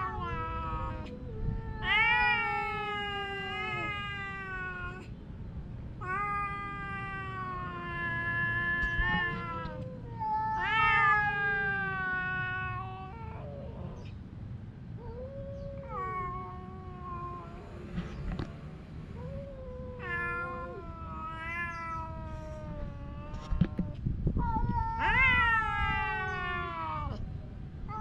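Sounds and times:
cat yowling: 0.0s - 5.0s, 6.0s - 14.0s, 15.0s - 17.8s, 19.2s - 27.2s.

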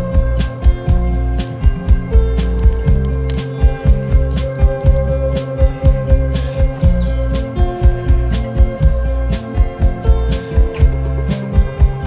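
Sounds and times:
drum beat: 0.0s - 9.1s
bass line: 0.0s - 12.0s
held chords: 0.0s - 12.0s.

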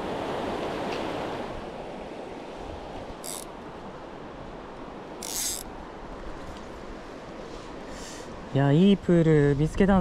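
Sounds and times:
river water flowing: 0.0s - 8.6s.

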